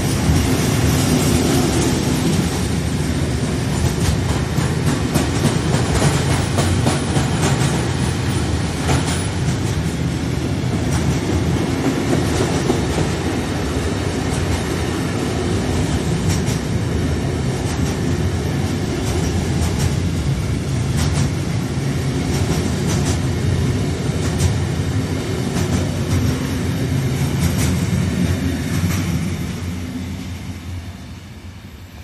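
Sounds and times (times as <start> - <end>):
train wheels rumbling on rail: 0.0 - 32.0
train wheel clicks: 3.7 - 10.1, 10.7 - 13.3, 15.8 - 16.8, 17.6 - 20.2, 20.9 - 21.6, 22.2 - 23.3, 24.2 - 24.8, 25.5 - 26.5, 27.1 - 28.0.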